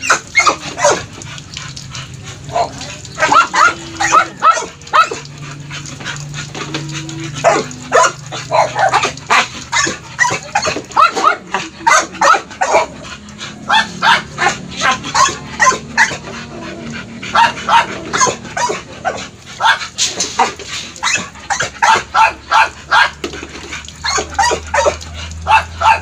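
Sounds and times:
dogs barking and yipping: 0.0 - 26.0.

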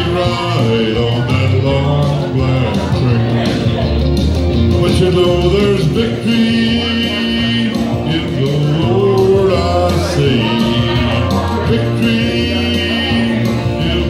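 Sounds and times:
instrumental backing: 0.0 - 14.0
man singing country song: 0.0 - 14.0.

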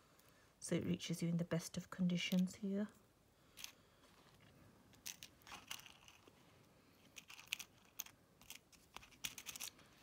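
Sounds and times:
plastic packaging rustling: 4.4 - 6.5.

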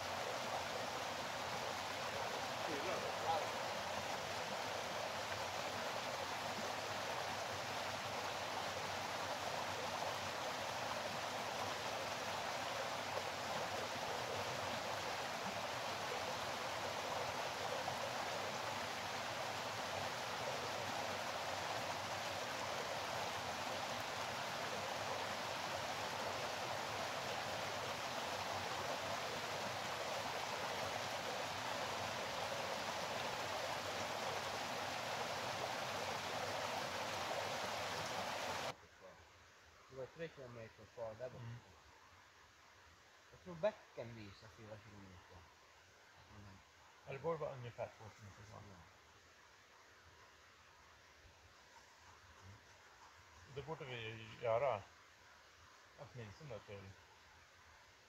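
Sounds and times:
stream water rushing: 0.0 - 38.8.

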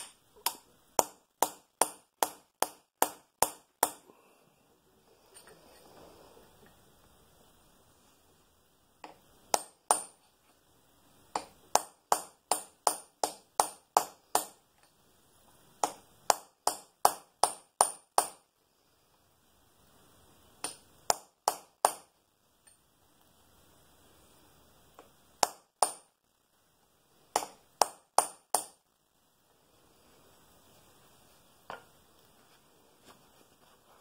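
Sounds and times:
hammer tapping steel punch: 0.0 - 4.0, 9.0 - 10.2, 11.3 - 14.6, 15.8 - 18.4.

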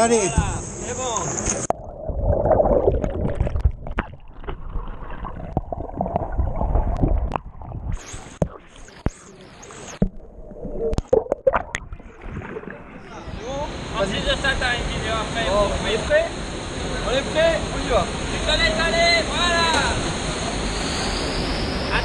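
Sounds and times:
stream water sloshing and gurgling: 1.2 - 13.3.

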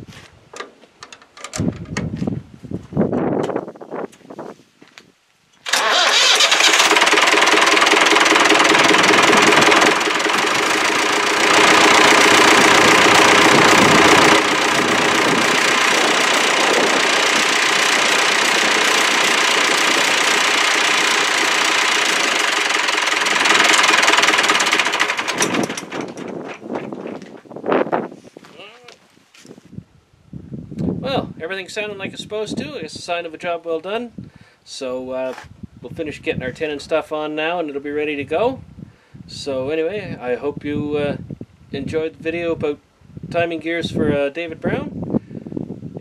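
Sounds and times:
tractor diesel engine running: 5.6 - 27.1.

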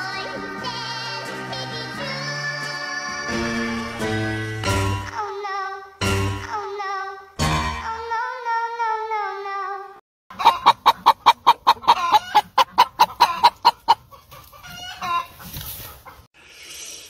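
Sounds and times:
hen clucking: 10.3 - 16.3.

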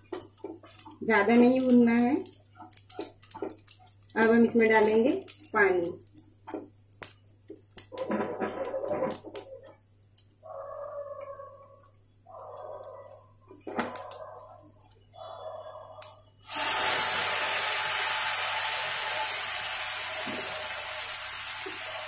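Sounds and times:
water hissing in hot pan: 16.4 - 22.0.

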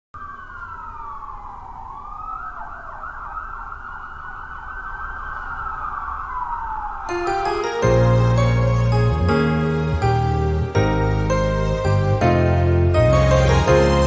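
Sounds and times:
siren-like gliding tones: 0.2 - 14.0
low hum: 5.6 - 14.0.

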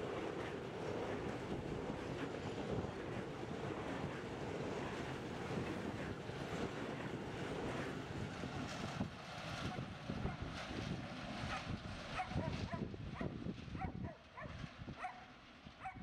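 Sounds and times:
dog yapping: 12.2 - 16.0.

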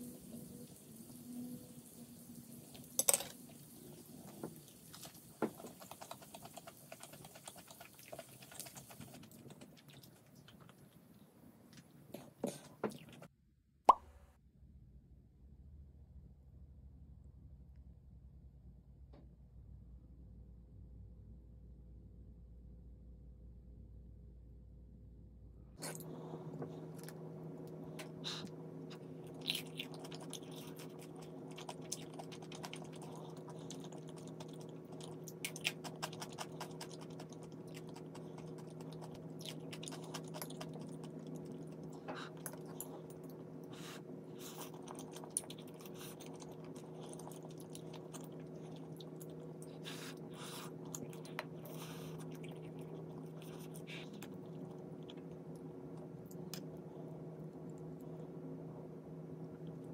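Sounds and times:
chewing: 4.3 - 13.3, 25.8 - 58.4
steady low hum: 14.0 - 59.9.

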